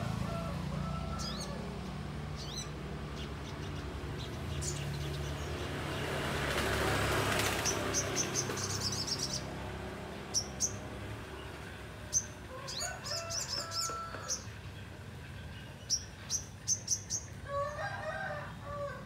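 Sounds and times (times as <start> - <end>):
bird high chirps: 7.6 - 9.5, 15.5 - 17.4.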